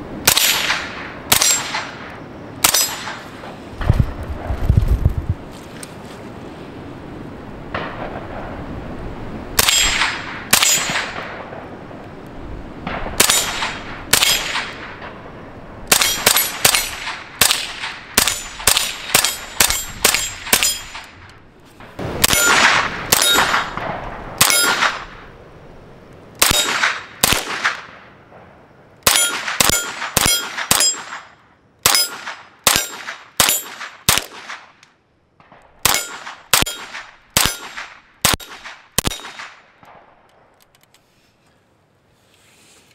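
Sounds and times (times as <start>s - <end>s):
rifle gunshots: 0.2s - 3.3s, 9.6s - 11.7s, 12.8s - 15.2s, 15.9s - 21.3s, 21.9s - 25.3s, 26.4s - 34.8s, 35.4s - 40.2s
steel target clanging: 19.2s - 21.1s, 22.2s - 23.8s.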